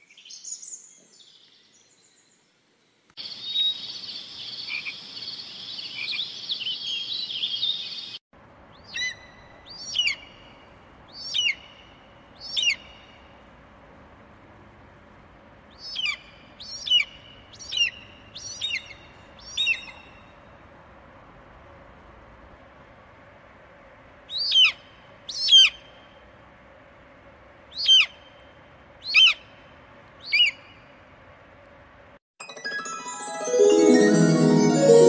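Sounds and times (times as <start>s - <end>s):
chorus of small birds chirping: 8.8s - 13.2s, 15.7s - 20.3s, 27.7s - 28.4s.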